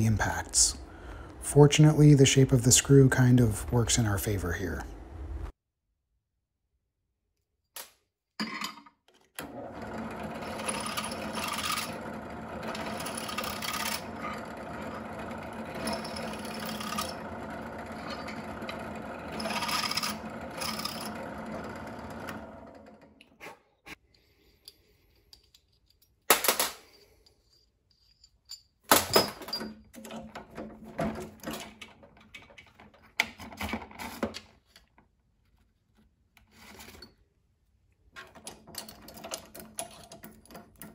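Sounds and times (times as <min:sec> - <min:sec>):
drill press running: 0:09.4 - 0:23.2
tools clicking and clattering: 0:24.4 - 0:35.0, 0:38.2 - 0:40.9.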